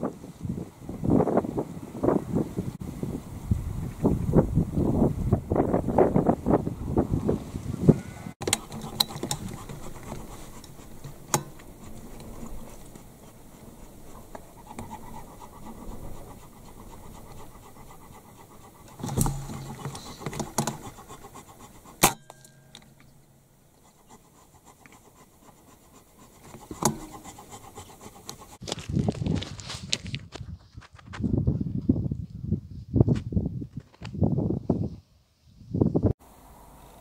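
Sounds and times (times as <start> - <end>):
outdoor rustle and handling noise: 8.0 - 31.3
sharp clicks and knocks: 8.4 - 13.4, 14.0 - 23.2, 26.0 - 28.6.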